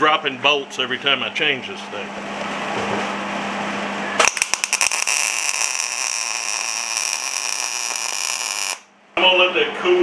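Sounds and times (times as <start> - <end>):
welding arc popping and hissing: 4.2 - 8.9.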